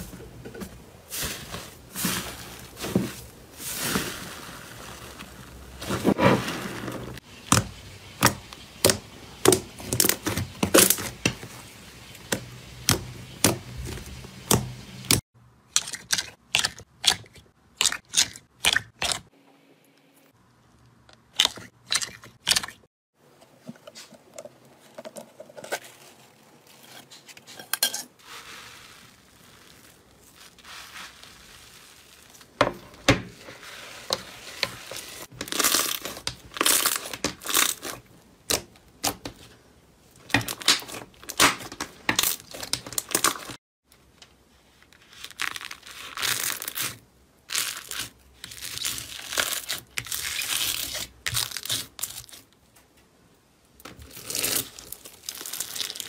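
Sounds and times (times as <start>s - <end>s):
slime crackling and crinkling: 1.1s - 14.5s, 28.2s - 32.6s, 33.3s - 39.5s, 44.7s - 52.5s, 53.8s - 56.0s.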